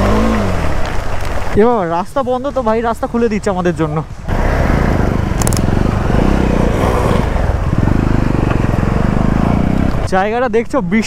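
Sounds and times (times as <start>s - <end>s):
motorcycle engine running: 0.0s - 1.4s, 4.3s - 10.3s.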